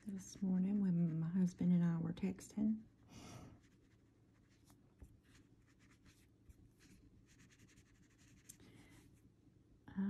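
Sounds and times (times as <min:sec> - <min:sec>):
pencil scratching on paper: 0:00.0 - 0:01.5, 0:03.6 - 0:08.5.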